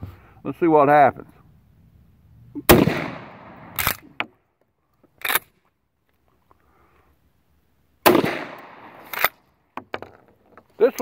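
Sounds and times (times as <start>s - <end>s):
shotgun blast echo: 2.7s - 4.0s, 8.0s - 9.3s.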